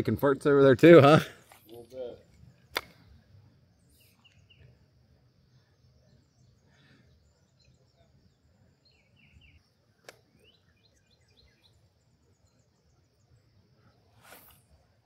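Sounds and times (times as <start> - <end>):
birds chirping: 0.0 - 15.0
sharp click: 2.7 - 3.0, 10.0 - 10.2.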